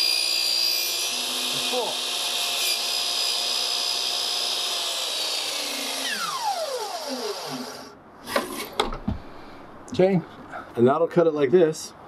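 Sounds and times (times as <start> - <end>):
chop saw motor whine: 0.0 - 8.0.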